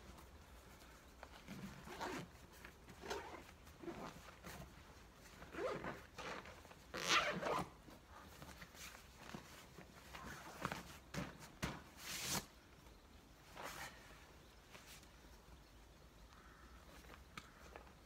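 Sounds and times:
zip being pulled closed: 0:01.6 - 0:04.5, 0:05.4 - 0:07.8.

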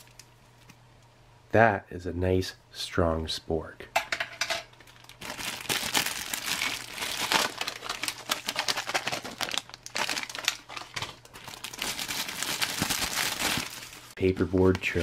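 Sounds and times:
plastic and foil packets crinkling: 0:04.7 - 0:15.0.

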